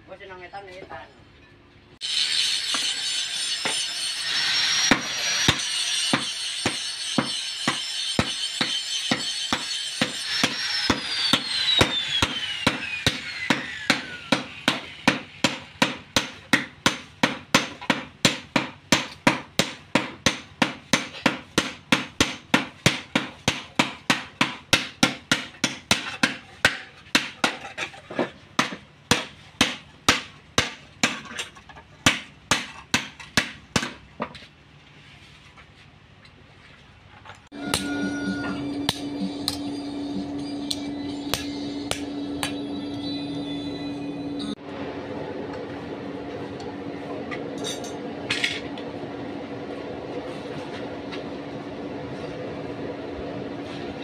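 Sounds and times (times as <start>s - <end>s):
hammer blows on anvil: 2.1s - 27.3s, 37.5s - 44.6s.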